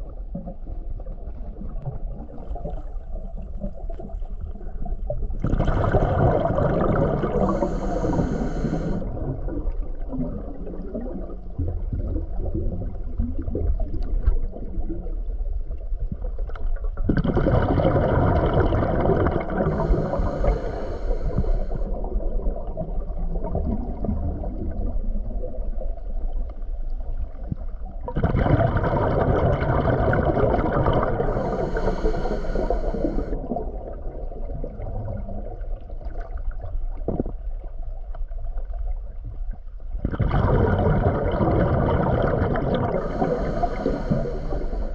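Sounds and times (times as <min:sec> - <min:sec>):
underwater rumble of water: 0:00.0 - 0:44.9
boat motor whirring underwater: 0:00.2 - 0:13.1, 0:17.2 - 0:22.3, 0:28.2 - 0:34.2, 0:40.0 - 0:44.9.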